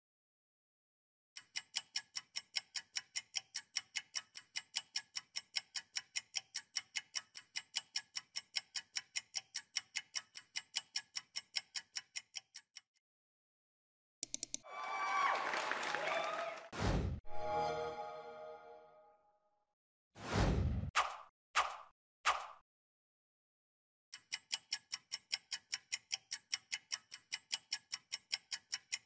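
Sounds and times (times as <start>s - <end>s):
rapid timer ticking: 1.4s - 13.0s, 14.2s - 14.6s, 24.1s - 29.0s.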